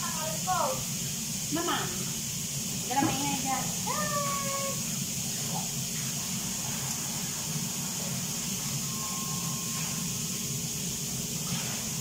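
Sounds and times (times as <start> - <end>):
range hood fan running: 0.0 - 12.0.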